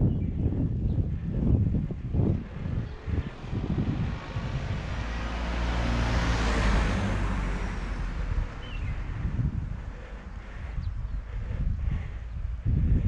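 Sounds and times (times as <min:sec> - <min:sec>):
wind on microphone: 0:00.0 - 0:13.0
car passing by: 0:02.6 - 0:10.4.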